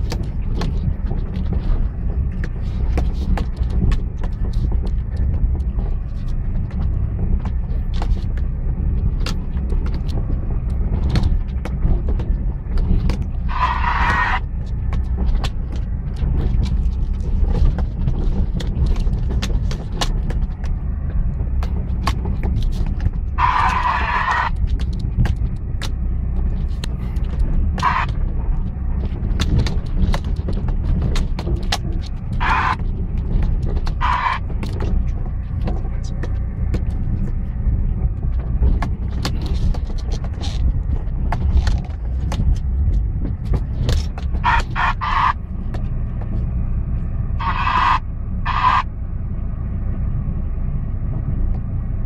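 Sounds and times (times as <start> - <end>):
knocks and rattles: 0.0 - 47.2
engine and tyres rumbling: 0.0 - 52.0.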